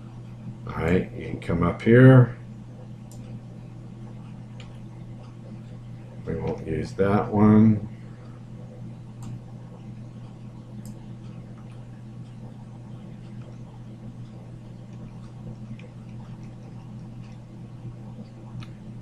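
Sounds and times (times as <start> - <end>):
low hum of recording setup: 0.0 - 19.0
faint sharp clicks: 9.2 - 9.4.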